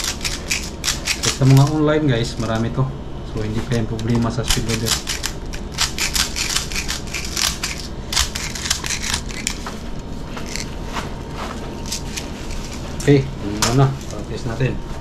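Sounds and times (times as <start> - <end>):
plastic bbs clicking and rattling: 0.0 - 1.8, 4.0 - 10.7.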